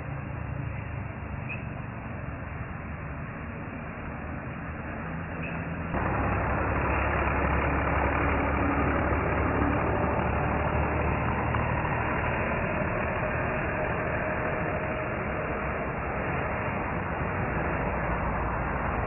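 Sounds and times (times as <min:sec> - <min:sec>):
combine harvester engine running: 0:06.0 - 0:19.0.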